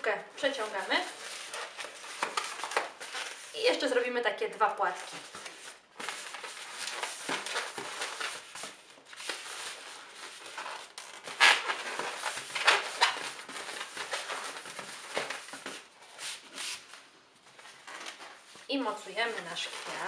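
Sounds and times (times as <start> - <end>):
balloon rubbing and crinkling: 4.8 - 16.9, 17.7 - 20.0.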